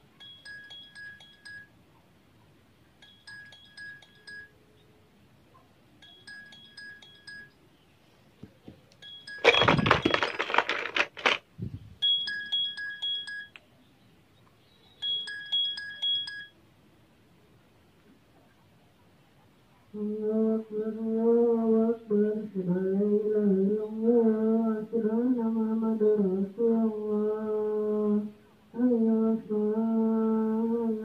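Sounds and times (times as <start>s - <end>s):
smartphone ringtone chime: 0.2s - 1.7s, 3.0s - 4.6s, 6.0s - 7.5s, 9.0s - 10.3s, 12.0s - 13.6s, 15.0s - 16.6s
phones being handled: 8.4s - 13.7s.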